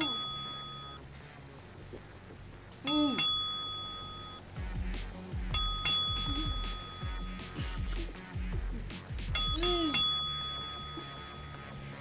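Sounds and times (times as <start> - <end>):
cartoon bell ding: 0.0 - 1.0, 2.9 - 4.4, 5.5 - 7.5, 9.4 - 11.9
light background music: 0.0 - 12.0.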